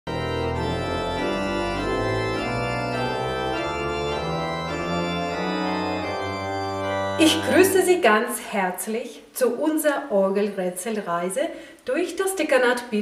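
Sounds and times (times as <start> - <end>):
pipe organ chords: 0.1 - 8.0.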